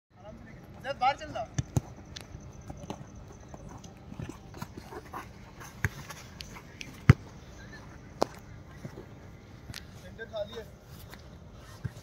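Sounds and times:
football being kicked: 0:01.4 - 0:02.0, 0:07.0 - 0:07.3.

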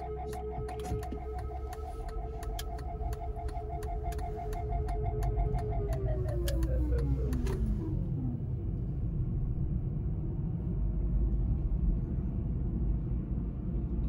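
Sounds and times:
car engine and tyre road noise: 0:00.0 - 0:14.0.

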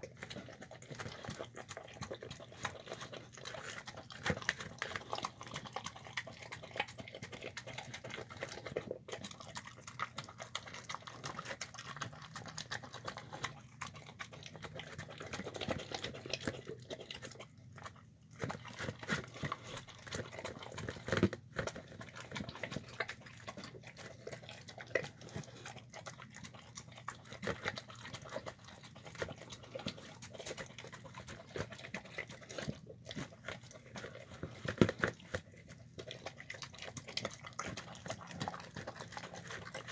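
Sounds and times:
dog chewing and licking: 0:00.0 - 0:39.9
teeth knocking on plastic: 0:18.4 - 0:23.6, 0:28.5 - 0:36.1.

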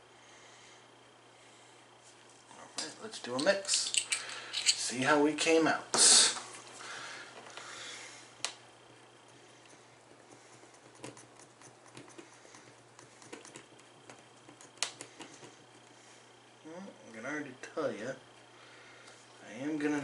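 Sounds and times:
stick stirring paint in cup: 0:10.0 - 0:16.0.

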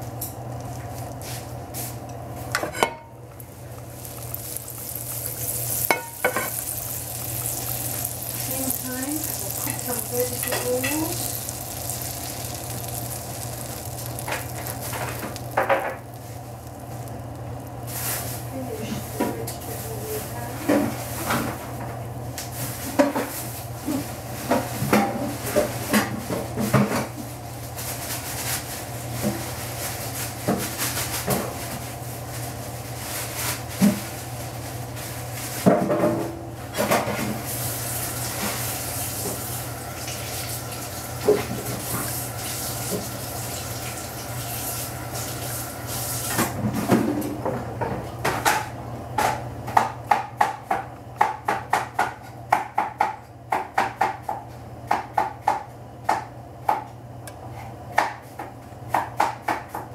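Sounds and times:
butter and oil sizzling in a pan: 0:02.6 - 0:18.7, 0:37.4 - 0:46.6
sharp pops and crackles: 0:04.0 - 0:18.0.

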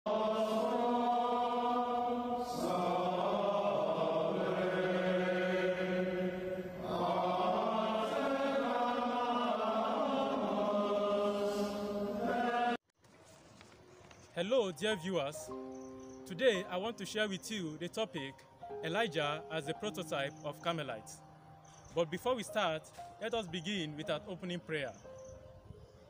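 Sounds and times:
voices chanting in unison: 0:00.1 - 0:12.8.

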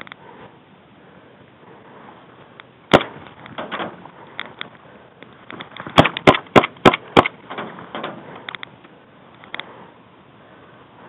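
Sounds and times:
quiet knocks and rustles: 0:02.5 - 0:06.0, 0:07.4 - 0:09.7
airsoft pistol shots: 0:02.9 - 0:03.2, 0:06.0 - 0:07.4.

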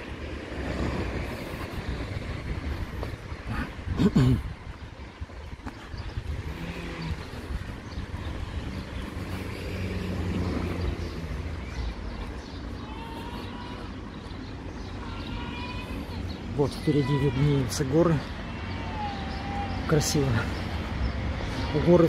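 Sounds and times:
low traffic rumble: 0:00.0 - 0:22.0
vehicle passing: 0:05.1 - 0:16.9.

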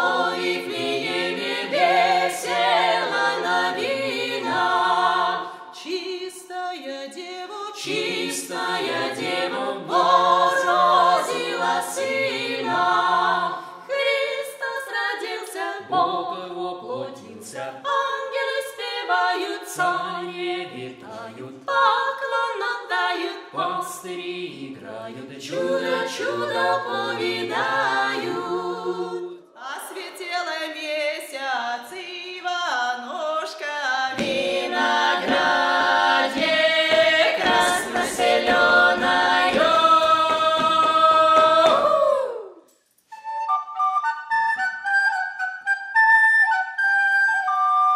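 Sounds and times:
mixed voices singing unaccompanied: 0:00.0 - 0:30.2, 0:33.0 - 0:42.6.

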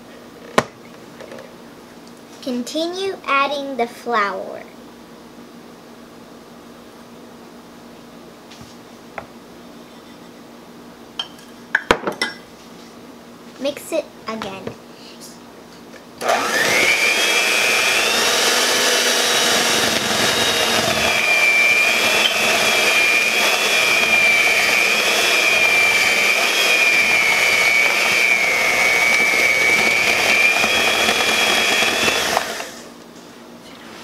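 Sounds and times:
electric hand mixer whining: 0:16.2 - 0:32.9.

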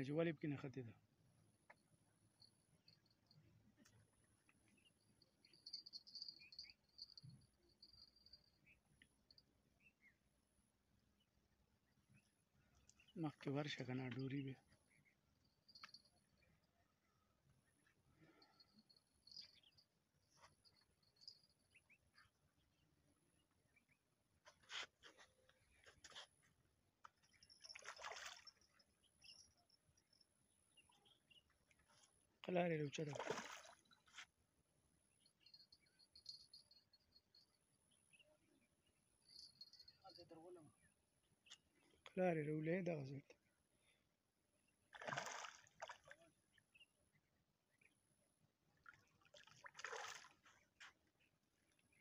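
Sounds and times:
fish splashing in water: 0:33.1 - 0:33.8, 0:44.9 - 0:46.2, 0:49.3 - 0:50.4.

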